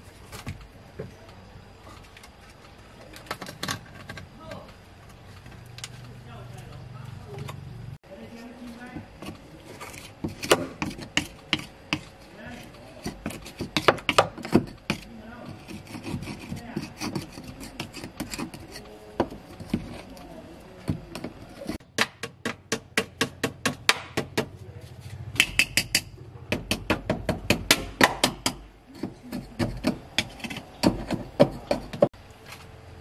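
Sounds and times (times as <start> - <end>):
screwdriver scraping dirt: 8.4 - 21.8, 28.9 - 32.1.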